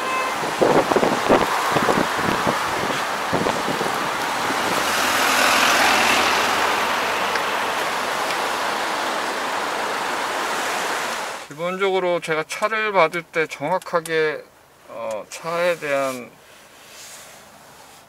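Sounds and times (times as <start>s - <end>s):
tyres hissing on road: 0.1s - 11.5s, 15.5s - 18.0s.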